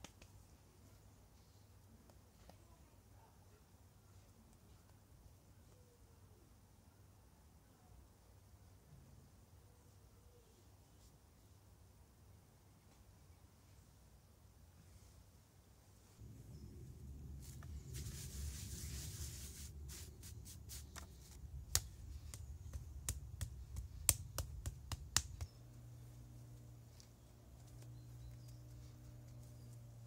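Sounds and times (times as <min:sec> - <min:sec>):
faint steady hum: 0:00.0 - 0:30.0
low rumble: 0:16.2 - 0:20.4.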